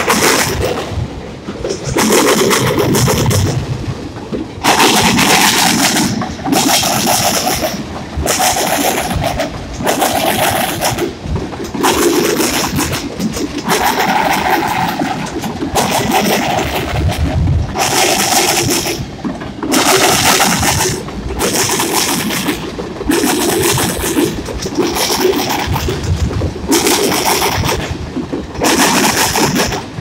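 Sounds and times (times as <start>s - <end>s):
freight train wheels clattering: 0.0s - 30.0s.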